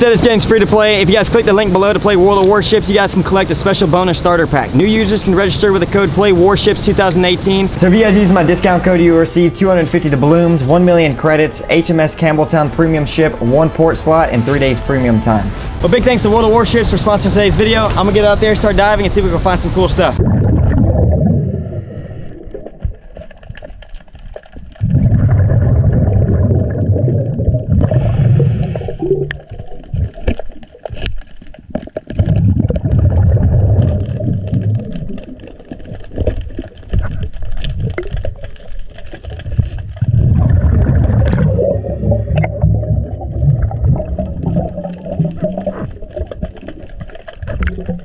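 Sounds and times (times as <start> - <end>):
water noise: 0.0 - 48.0
diver's exhaled bubbles underwater: 20.2 - 23.8, 24.6 - 31.0, 31.6 - 48.0.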